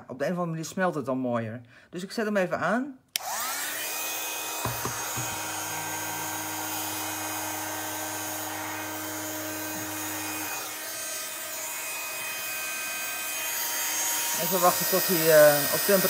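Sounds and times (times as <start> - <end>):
heat gun fan blowing: 3.2 - 16.0
light knocks: 4.6 - 5.4.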